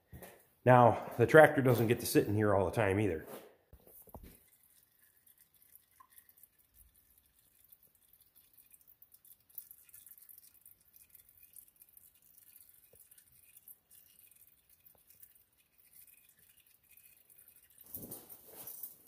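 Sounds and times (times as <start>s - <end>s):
oil trickling into plastic bucket: 3.8s - 19.0s.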